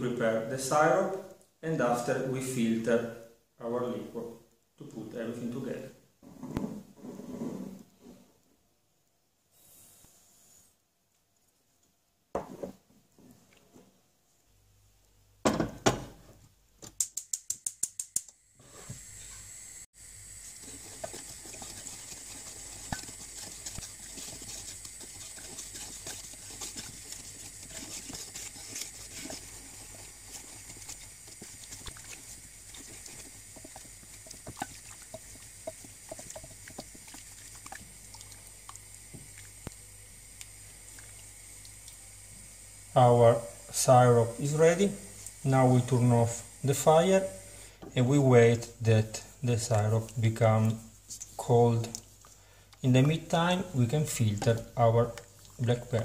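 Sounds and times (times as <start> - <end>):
syrup hissing in saucepan: 18.6 - 56.0
spatula scraping pan: 20.4 - 37.8.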